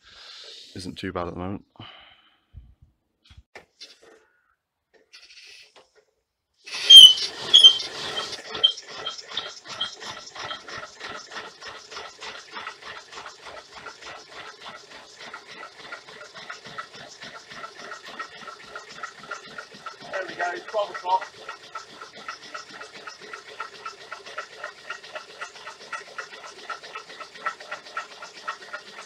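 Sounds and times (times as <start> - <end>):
shrill squeaks: 6.7 - 10.6
stirling engine running: 6.7 - 29.0.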